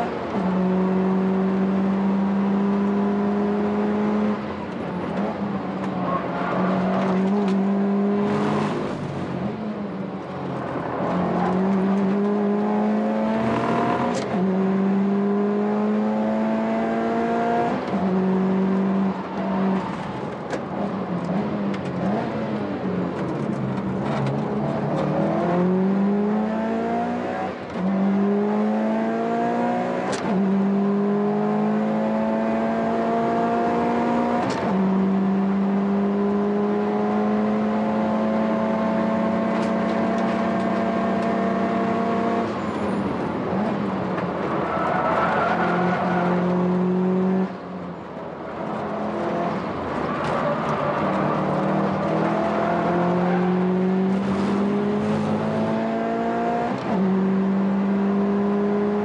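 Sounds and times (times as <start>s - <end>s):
car engine accelerating: 0.0s - 59.0s.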